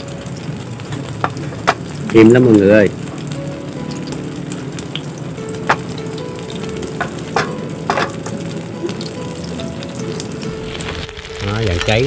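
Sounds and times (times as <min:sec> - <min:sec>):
shrimp sizzling in hot oil: 0:00.0 - 0:12.0
utensil clicking against pan: 0:00.9 - 0:02.0, 0:05.6 - 0:06.1, 0:06.9 - 0:08.4.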